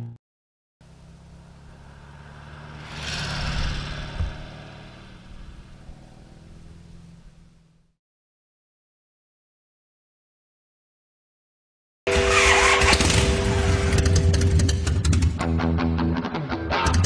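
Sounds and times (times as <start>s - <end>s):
trike engine driving past: 0.9s - 7.9s.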